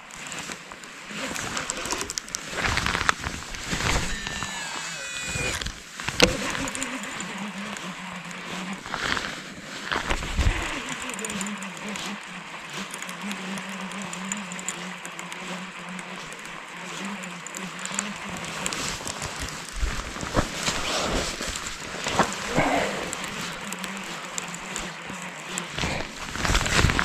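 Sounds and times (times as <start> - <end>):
reel winding hum: 0.0 - 27.0
fishing reel spool whine: 0.1 - 27.0
reel click: 10.4 - 27.0.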